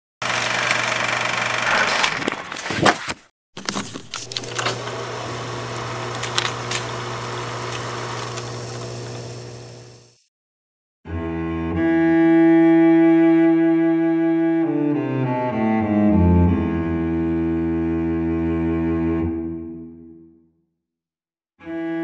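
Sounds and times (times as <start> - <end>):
film projector whirring: 0.2 - 2.7, 3.6 - 10.2
clicks and crackle: 5.7 - 7.0.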